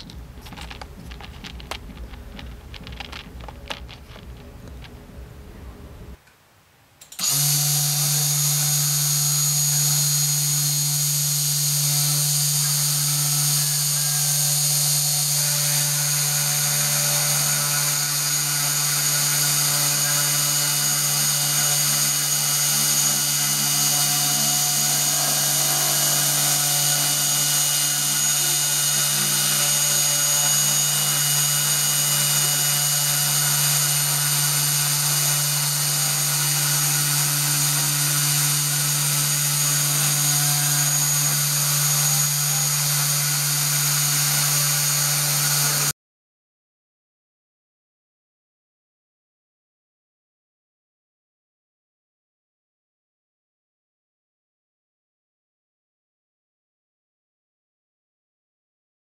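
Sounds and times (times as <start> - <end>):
router spindle motor whine: 7.2 - 45.9.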